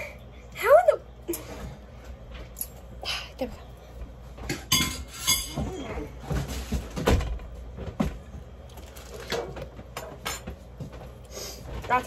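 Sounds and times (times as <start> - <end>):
forks and kitchenware clinking: 4.5 - 5.7.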